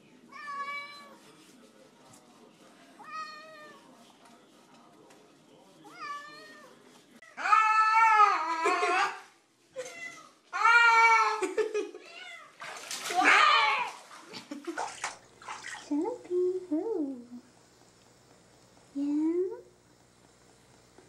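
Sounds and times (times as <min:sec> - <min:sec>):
cats meowing: 0:05.9 - 0:09.1.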